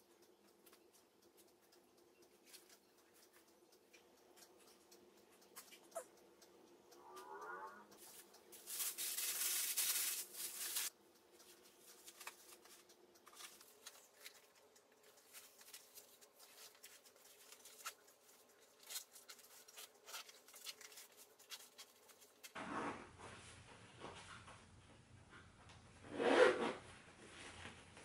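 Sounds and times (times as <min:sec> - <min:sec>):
fabric rustling: 0:08.6 - 0:10.9.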